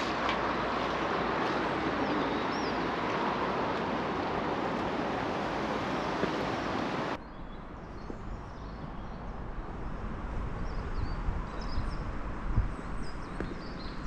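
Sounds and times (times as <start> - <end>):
running water rushing: 0.0 - 7.2.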